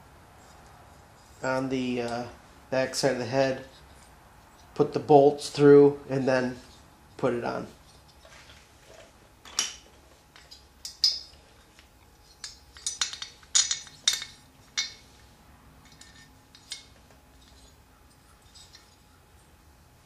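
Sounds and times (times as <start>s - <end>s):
metal bolts clinking: 9.4s - 19.0s.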